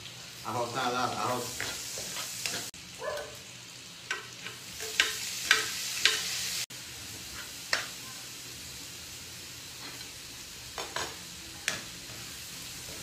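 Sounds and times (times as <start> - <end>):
vegetables sizzling in a wok: 0.0 - 13.0.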